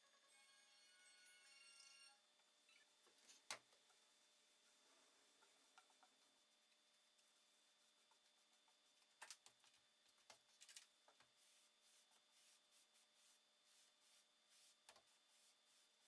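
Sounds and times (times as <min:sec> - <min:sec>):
sponge rubbing on wood: 0:03.8 - 0:09.2, 0:11.3 - 0:16.0.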